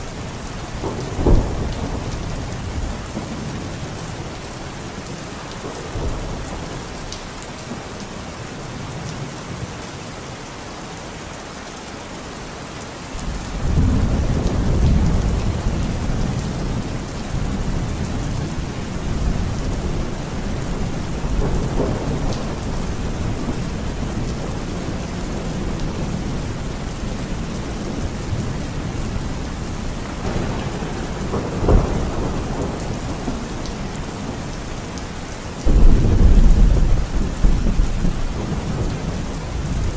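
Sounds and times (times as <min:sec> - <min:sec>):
heavy rain falling: 0:00.0 - 0:39.9
rolling thunder: 0:00.8 - 0:04.2, 0:13.3 - 0:34.6, 0:35.6 - 0:39.9.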